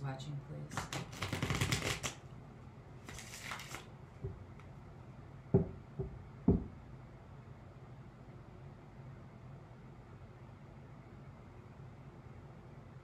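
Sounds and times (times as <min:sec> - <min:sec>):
cards being riffle-shuffled: 0:00.7 - 0:02.2, 0:03.0 - 0:03.9.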